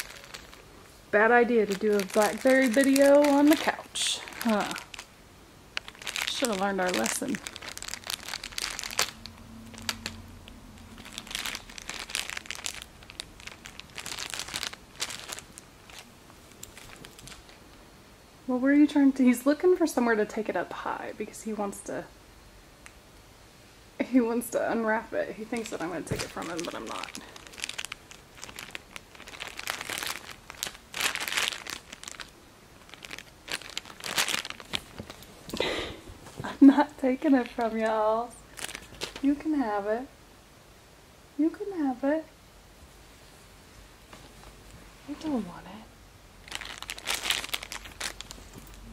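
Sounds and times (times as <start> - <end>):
plastic wrapping crinkling: 0.0 - 17.7, 25.3 - 39.5, 46.4 - 48.9.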